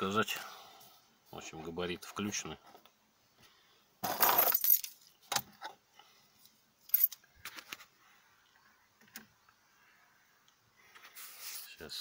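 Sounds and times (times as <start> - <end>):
rustle: 10.7 - 12.0.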